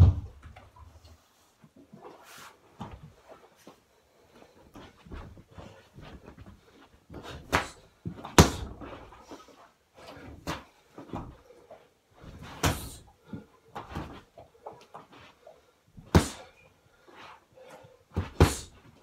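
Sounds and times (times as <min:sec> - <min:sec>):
punches thudding on punching bag: 0:08.4 - 0:08.8, 0:12.6 - 0:13.0, 0:18.2 - 0:18.8.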